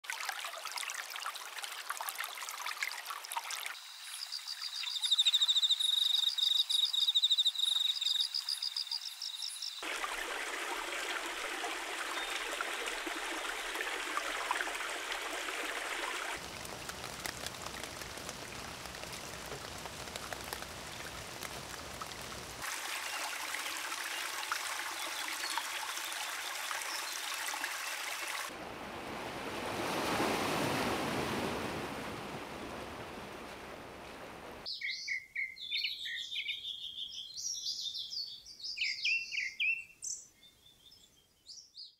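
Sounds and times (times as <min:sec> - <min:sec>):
steady water noise: 0:00.0 - 0:05.0, 0:08.4 - 0:34.7
songbirds chirping: 0:03.8 - 0:09.8, 0:34.0 - 0:41.9.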